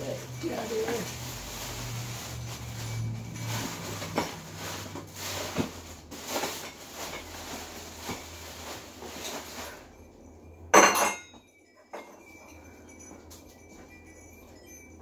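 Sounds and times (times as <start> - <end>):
rustle of moving air: 0.0 - 10.1
ceiling fan hum: 0.0 - 15.0.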